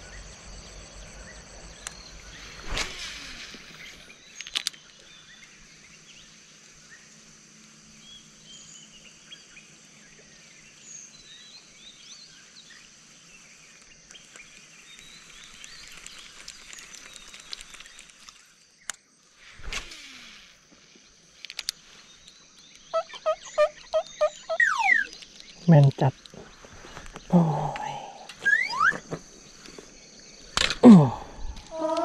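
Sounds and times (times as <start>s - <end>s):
birds chirping: 20.9s - 32.0s
high-pitched drone: 23.2s - 25.1s.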